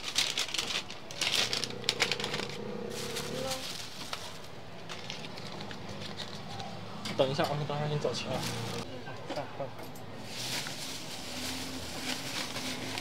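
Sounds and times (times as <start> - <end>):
plastic bag rustling: 0.0 - 6.7, 8.3 - 8.9, 10.2 - 13.0.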